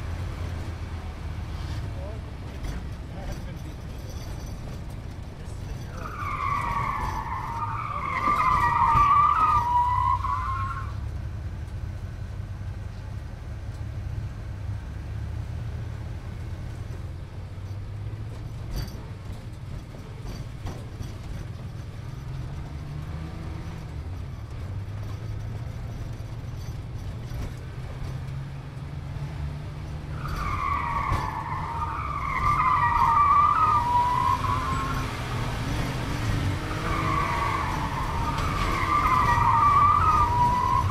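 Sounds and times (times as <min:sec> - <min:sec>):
car tire squeal: 0:05.7 - 0:11.0, 0:30.0 - 0:40.9.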